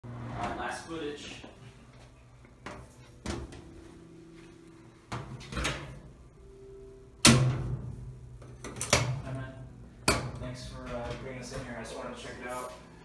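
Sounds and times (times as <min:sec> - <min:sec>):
washing machine lid banging shut: 0:07.2 - 0:07.8.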